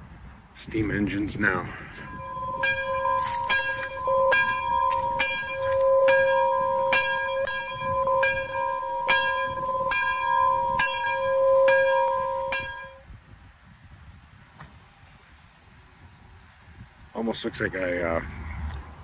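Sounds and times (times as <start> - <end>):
bell ringing: 2.0 - 13.0.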